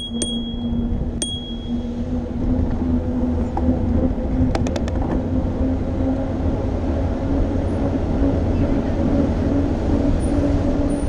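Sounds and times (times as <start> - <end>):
bicycle bell ringing: 0.0 - 1.8
traffic and road rumble: 0.0 - 11.0
quick run of clicks: 4.5 - 5.2.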